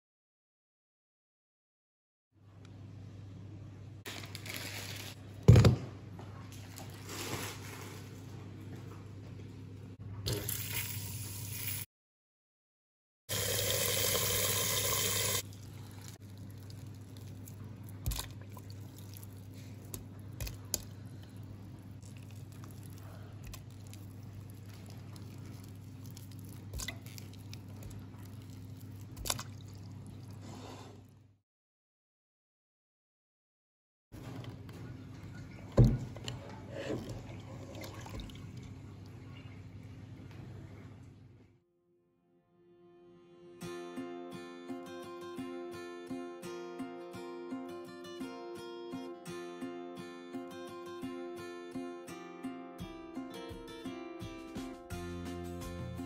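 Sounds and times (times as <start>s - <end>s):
water pouring into steel bowl: 13.3s - 17.4s, 36.8s - 38.6s.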